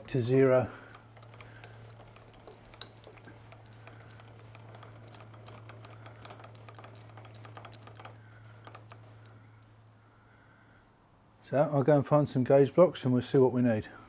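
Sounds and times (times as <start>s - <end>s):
steady low hum: 0.0s - 11.7s
small metallic clicks and taps: 0.8s - 9.8s.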